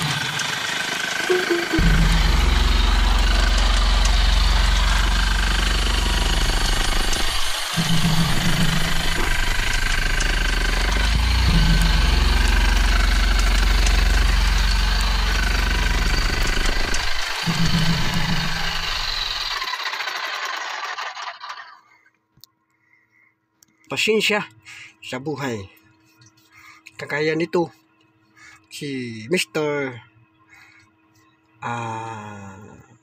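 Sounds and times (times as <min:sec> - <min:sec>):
jackhammer drilling into rock: 0:00.0 - 0:21.9.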